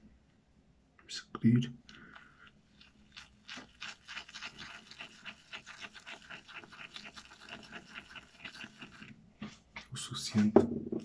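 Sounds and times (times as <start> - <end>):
shaving brush scrubbing soap: 2.7 - 9.9.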